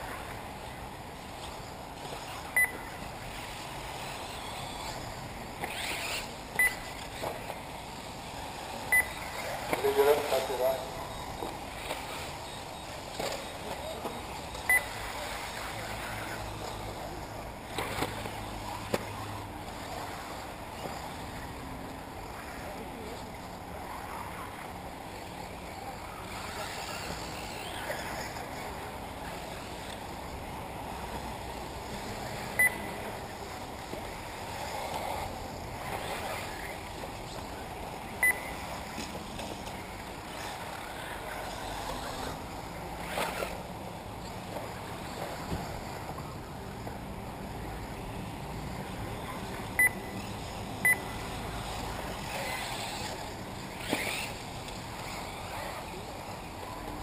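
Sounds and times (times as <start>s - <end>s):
electric rc cars running: 0.0s - 57.0s
wind: 0.0s - 57.0s
short electronic beep: 2.6s - 2.8s, 6.6s - 6.8s, 8.9s - 9.2s, 32.6s - 32.9s, 38.2s - 38.5s, 49.8s - 50.0s, 50.8s - 51.1s.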